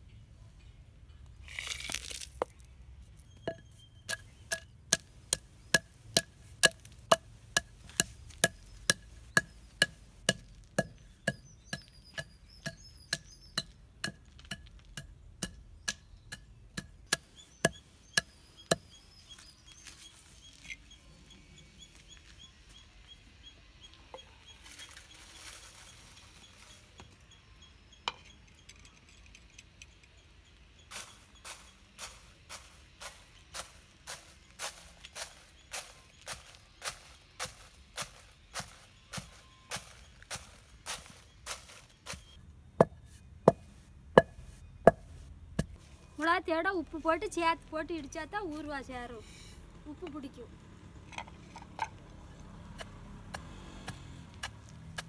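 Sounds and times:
pestle pounding in stone mortar: 3.5 - 18.9.

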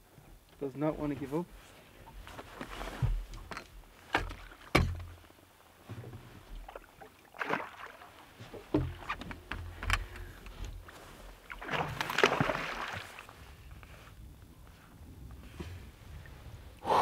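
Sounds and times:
fish splashing against boat: 11.4 - 13.4.

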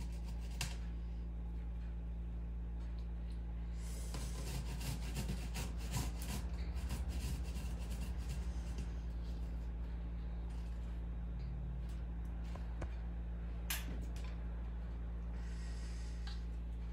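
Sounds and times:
onion grating on metal grater: 4.0 - 8.8.

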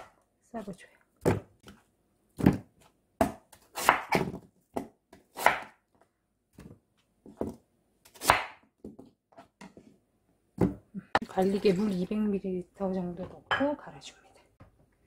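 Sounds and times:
knife chopping on wooden board: 3.2 - 5.8, 7.4 - 8.6.

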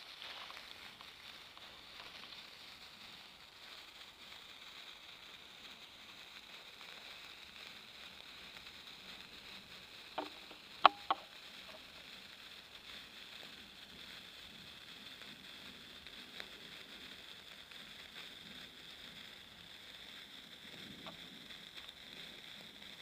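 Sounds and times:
sparkler fizzing crackle: 0.0 - 23.0
sharp clicks: 10.2 - 11.3.

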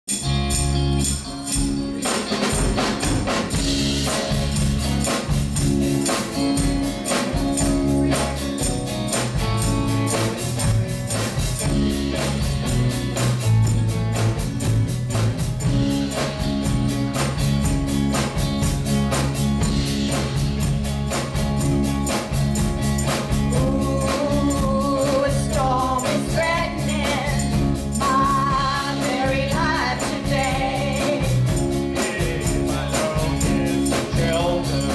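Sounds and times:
rock band playing: 0.0 - 34.9
tambourine shaking: 0.0 - 34.9
drum kit beat: 0.1 - 34.9
person singing: 23.5 - 34.9.

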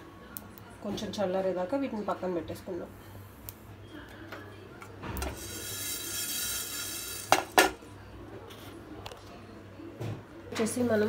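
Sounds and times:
seeds rattling across a pan: 5.4 - 7.6.

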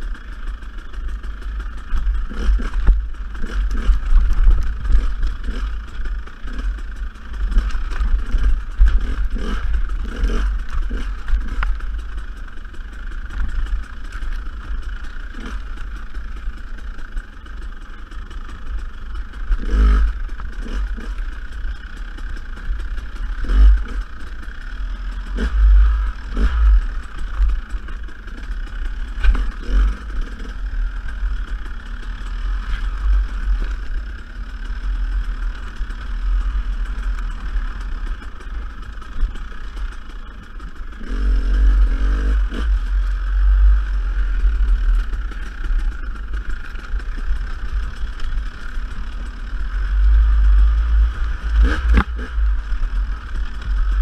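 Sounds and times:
dirt bike engine revving: 0.0 - 54.0
low rumble: 0.0 - 54.0
sharp knocks and clatter: 0.3 - 17.3, 25.1 - 42.8, 50.1 - 54.0.

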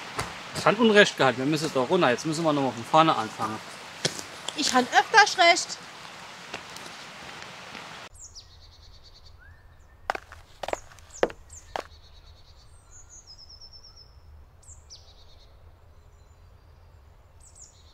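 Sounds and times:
small birds singing: 8.1 - 17.9.

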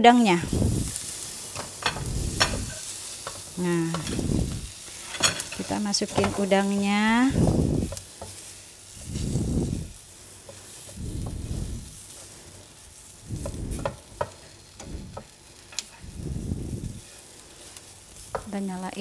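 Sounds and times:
food frying: 0.0 - 19.0
spatula scraping pan: 0.8 - 18.5.

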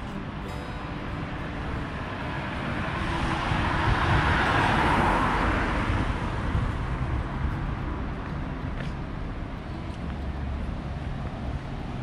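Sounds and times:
car passing: 0.0 - 12.0
traffic hum: 0.0 - 12.0.

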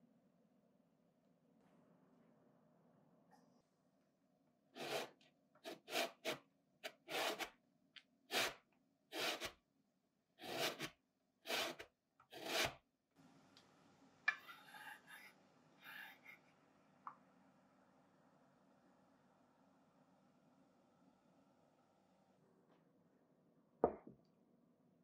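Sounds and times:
grater rasping orange peel: 4.8 - 7.5, 8.3 - 9.6, 10.4 - 10.9, 11.5 - 12.8.

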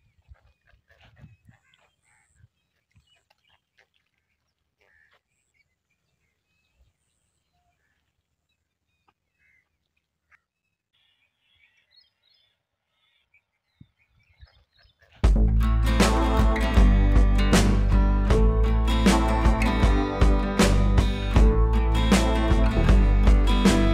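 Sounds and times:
bird chirps: 0.0 - 15.2.

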